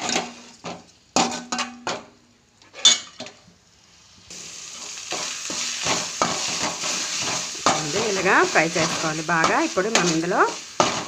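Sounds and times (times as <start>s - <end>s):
paste sizzling in a metal pan: 0.0s - 11.0s
stirring strokes: 4.7s - 11.0s.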